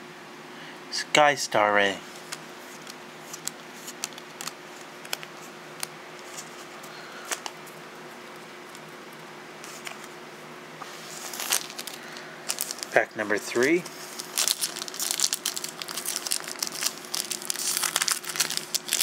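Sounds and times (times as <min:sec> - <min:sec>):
faint hum: 0:00.0 - 0:19.0
paper cards clicking and flicking: 0:02.2 - 0:07.8, 0:11.2 - 0:12.9, 0:13.6 - 0:19.0.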